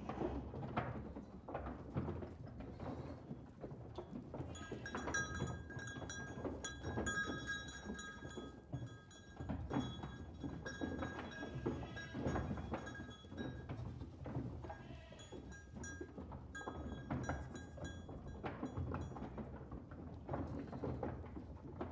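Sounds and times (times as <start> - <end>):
knocking and tapping: 3.9 - 14.6.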